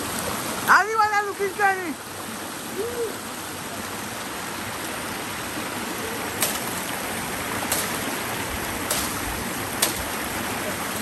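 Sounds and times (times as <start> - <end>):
river stream rushing: 0.0 - 11.0
dry bamboo snapping: 6.4 - 6.7, 7.7 - 8.1, 8.9 - 9.2, 9.8 - 10.1.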